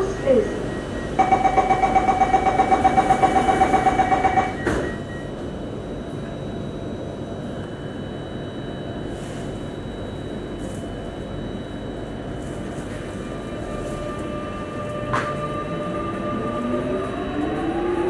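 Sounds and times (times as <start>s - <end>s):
rapid warning beeps: 0.0s - 5.3s
train humming: 11.8s - 18.0s.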